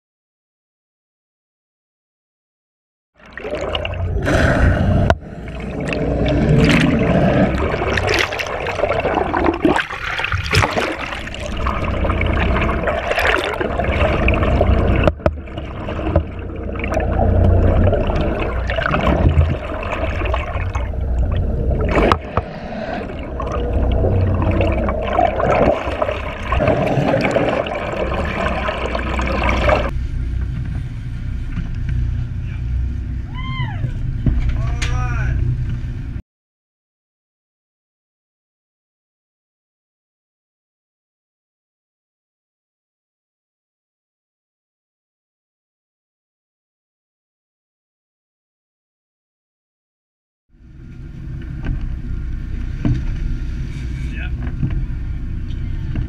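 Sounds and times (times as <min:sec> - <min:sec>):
seawater rushing and gurgling: 0:03.2 - 0:36.2, 0:50.6 - 0:56.0
low rumble: 0:03.4 - 0:36.2, 0:50.5 - 0:56.0
sharp splashes: 0:05.5 - 0:29.9.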